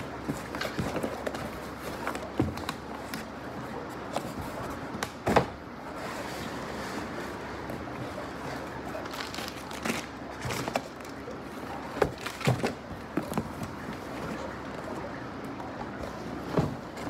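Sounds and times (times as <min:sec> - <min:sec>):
plastic wrapping rustling: 0:08.9 - 0:11.2.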